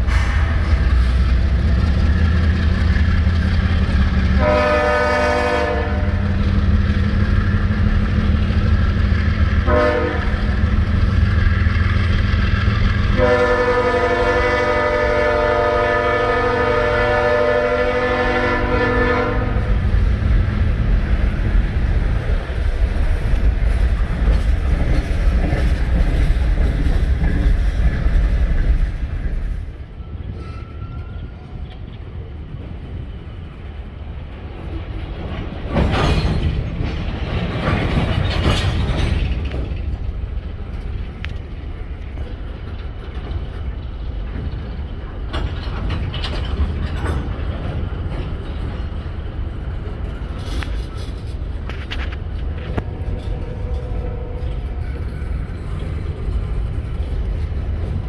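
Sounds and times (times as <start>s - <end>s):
diesel locomotive rumble: 0.0s - 58.0s
train wheel clatter: 0.0s - 58.0s
train horn blasts: 4.4s - 6.3s, 9.6s - 10.4s, 13.1s - 19.8s.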